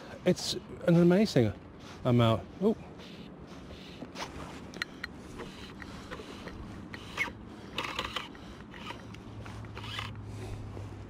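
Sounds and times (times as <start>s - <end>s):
fly line rasping through rod guides: 3.0s - 10.3s.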